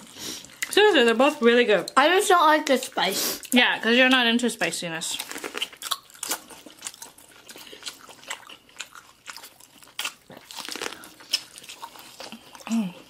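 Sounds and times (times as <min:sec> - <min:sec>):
crunchy chewing: 0:05.1 - 0:13.0.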